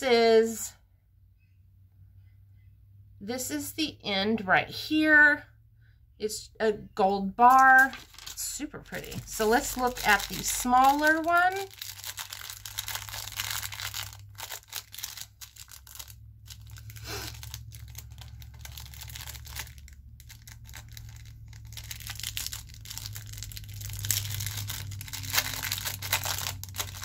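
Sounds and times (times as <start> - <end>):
low steady hum: 0.0 - 27.0
packaging crinkling: 7.5 - 27.0.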